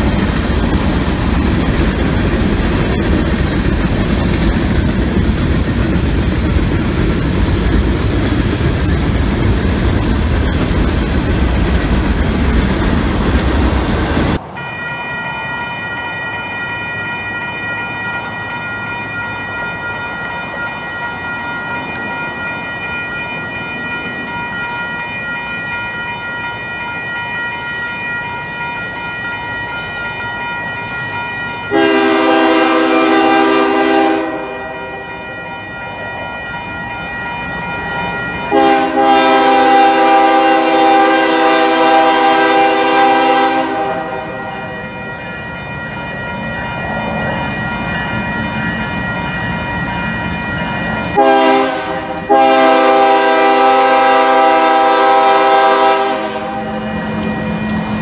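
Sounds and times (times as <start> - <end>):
crossing bell ringing: 0.0 - 58.0
train rumble: 0.0 - 58.0
locomotive air horn blasts: 31.7 - 34.6, 38.5 - 44.2, 51.2 - 56.7.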